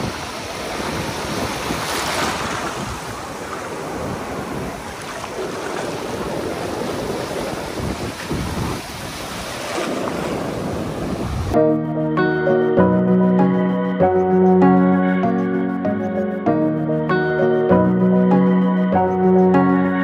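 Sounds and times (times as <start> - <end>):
surf washing up a beach: 0.0 - 11.6
wind buffeting microphone: 0.0 - 11.6.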